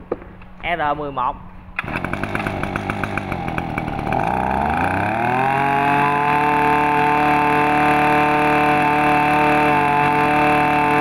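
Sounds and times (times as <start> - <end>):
brush cutter engine revving: 1.8 - 11.0.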